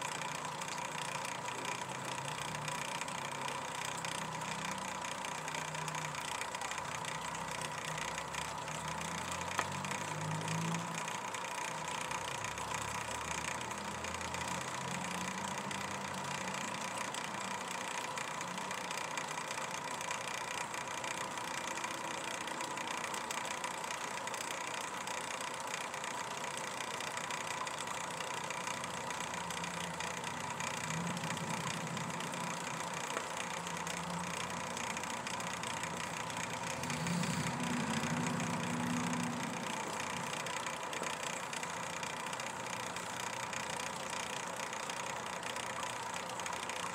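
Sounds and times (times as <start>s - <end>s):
constant hiss: 0.0s - 46.9s
engine idling hum: 0.0s - 46.9s.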